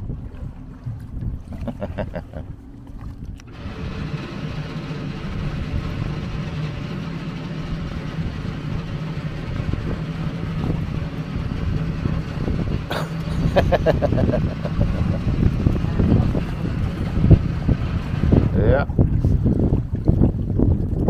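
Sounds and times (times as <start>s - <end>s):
boat engines humming: 0.0s - 21.0s
wind and water rushing: 0.0s - 21.0s.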